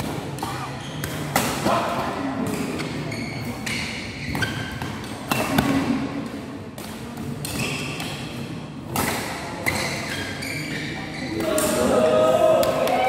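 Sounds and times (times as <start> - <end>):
rackets striking shuttlecock: 0.0 - 3.0, 3.6 - 10.3
shoes squeaking on court: 2.8 - 5.1, 9.7 - 11.5.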